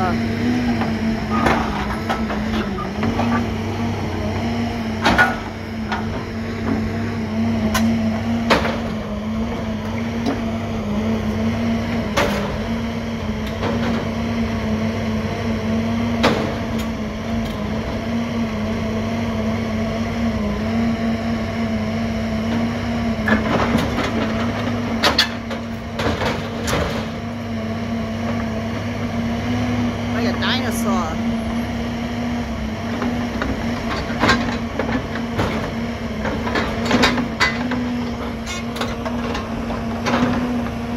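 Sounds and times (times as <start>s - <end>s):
diesel engine running: 0.0s - 40.9s
heavy metal clanks: 33.8s - 40.5s.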